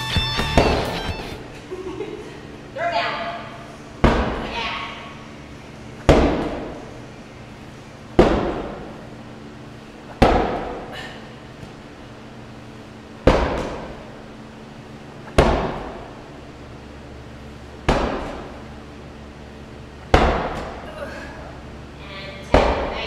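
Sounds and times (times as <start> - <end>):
medicine ball thudding on turf: 0.2 - 1.3, 4.0 - 4.5, 6.0 - 6.8, 8.2 - 8.9, 10.1 - 10.9, 13.2 - 14.1, 15.2 - 16.1, 17.8 - 18.6, 20.0 - 20.9, 22.4 - 23.0.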